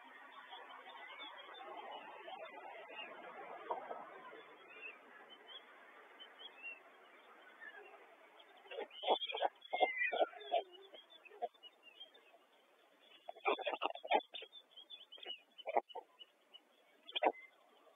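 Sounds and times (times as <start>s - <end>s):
faint microphone hiss: 0.0s - 17.9s
stork calls: 7.6s - 17.9s.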